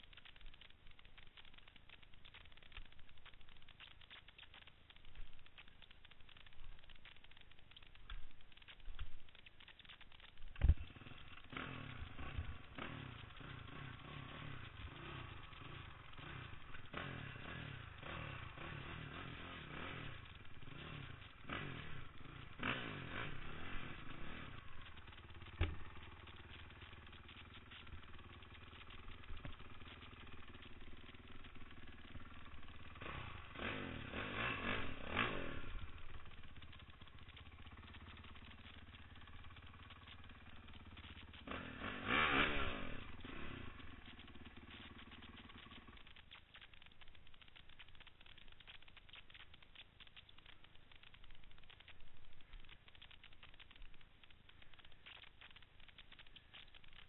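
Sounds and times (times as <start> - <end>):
dirt bike engine revving: 9.4 - 49.4.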